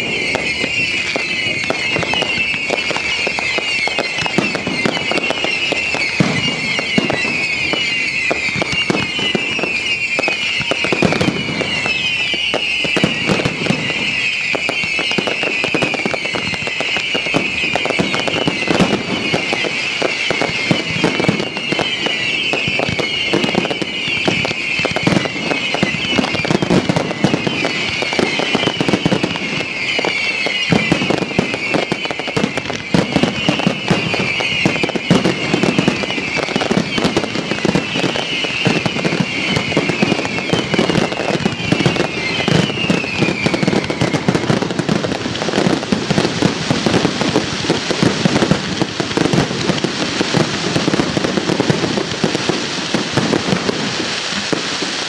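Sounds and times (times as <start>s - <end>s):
high falling whistle: 0.0s - 47.4s
fireworks bursting and crackling: 0.0s - 55.0s.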